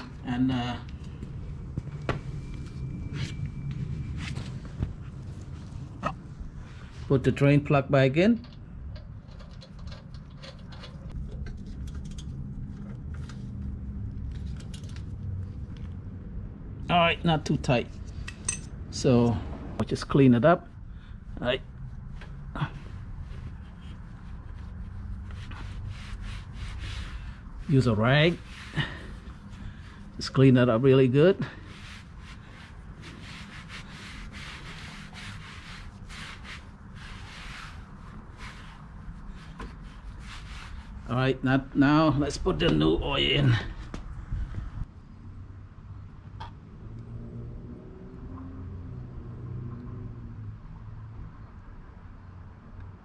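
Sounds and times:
low steady rumble: 0.0s - 47.5s
cloth rag rubbing: 21.3s - 41.2s.

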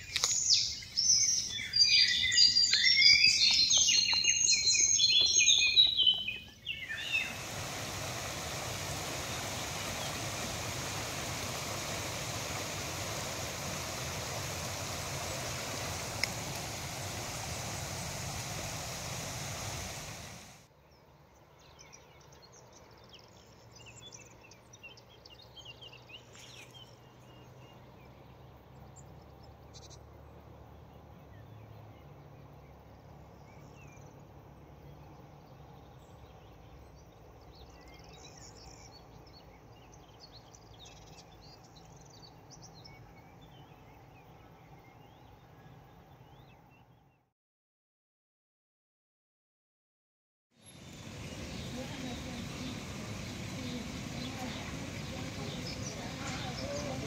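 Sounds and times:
brook running over stones: 0.0s - 20.6s, 50.6s - 57.0s
songbird singing: 0.0s - 47.2s, 50.6s - 57.0s
faint bird calls: 50.7s - 57.0s.

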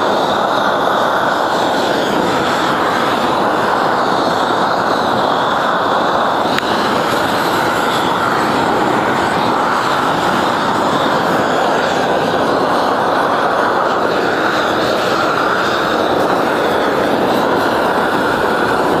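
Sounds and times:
gas torch roaring: 0.0s - 19.0s.

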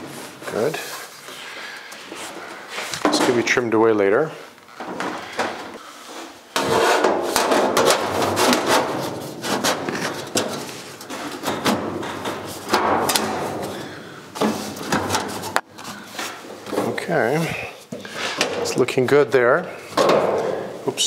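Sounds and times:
steel panel scraping and rattling: 6.6s - 15.6s.

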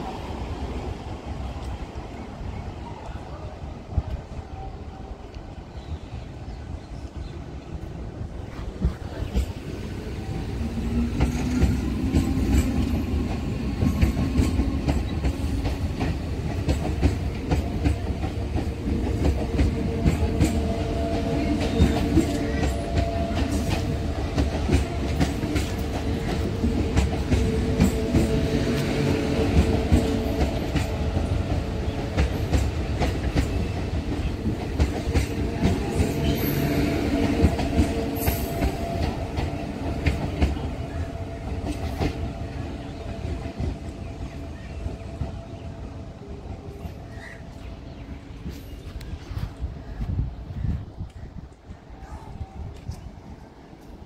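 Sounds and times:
train wheels clattering on rails: 8.6s - 45.6s.

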